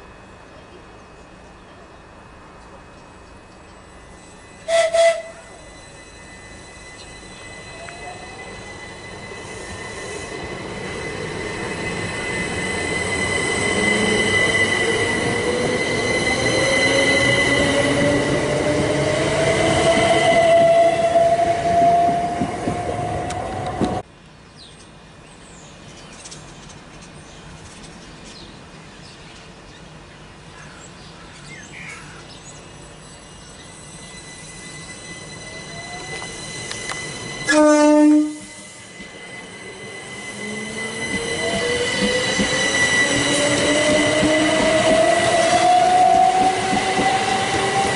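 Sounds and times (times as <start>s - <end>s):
electric train motor whine: 0.0s - 24.0s, 32.8s - 47.9s
steady high tone: 0.0s - 24.0s, 32.7s - 47.9s
train rumble: 0.0s - 24.1s, 32.5s - 47.9s.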